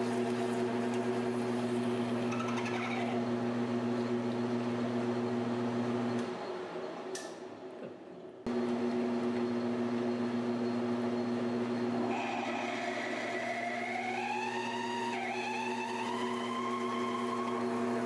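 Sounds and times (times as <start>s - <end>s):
metal lathe humming: 11.9s - 18.0s
drill squealing in metal: 12.0s - 17.9s.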